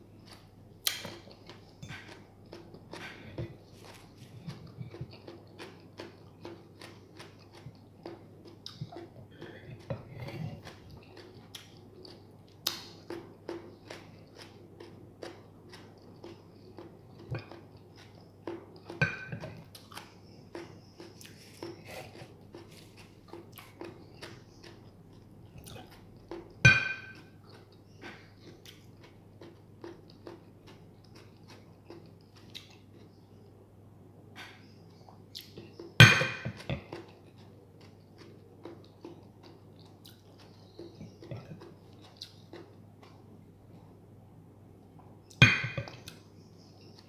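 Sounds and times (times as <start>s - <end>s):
person chewing: 0.1s - 33.6s, 34.4s - 44.0s
mug clinking against plate: 26.7s - 27.2s, 45.4s - 46.0s.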